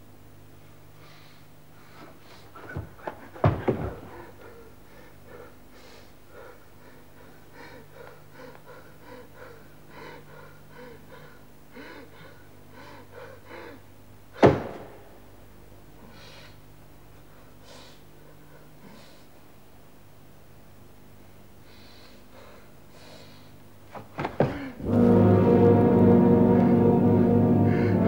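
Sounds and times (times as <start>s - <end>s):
man panting and gasping: 3.2s - 13.9s, 21.6s - 23.6s.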